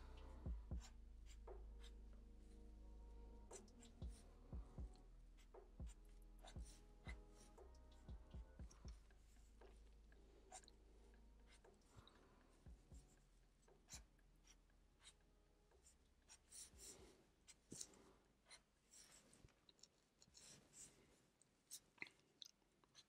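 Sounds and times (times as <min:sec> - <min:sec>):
marker pen drawing on paper: 0:00.8 - 0:02.0, 0:15.8 - 0:17.9.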